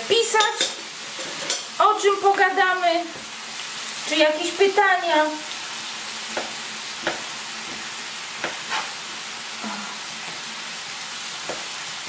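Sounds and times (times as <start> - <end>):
bacon sizzling in a frying pan: 0.0 - 12.0
knife strokes on plastic cutting board: 8.4 - 9.0.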